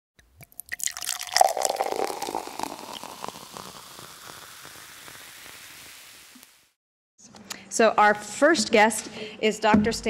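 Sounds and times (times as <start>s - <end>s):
soda fizzing: 0.4s - 6.8s.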